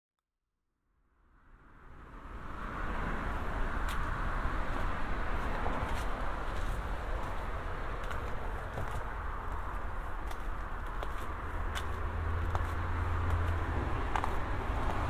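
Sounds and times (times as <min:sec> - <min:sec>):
distant road traffic hum: 0:01.2 - 0:15.0
footsteps on concrete stairs: 0:04.7 - 0:15.0.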